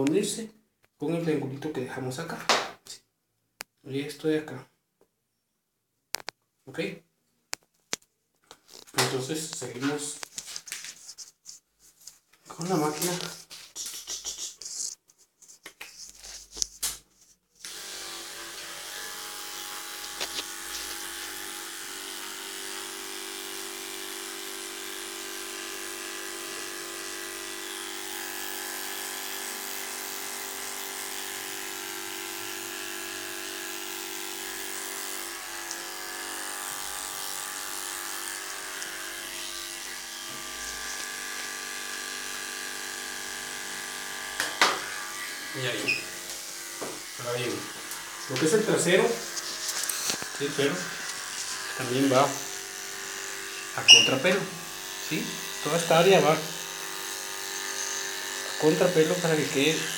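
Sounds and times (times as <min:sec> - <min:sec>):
electric clipper humming: 0:17.6 - 0:59.9.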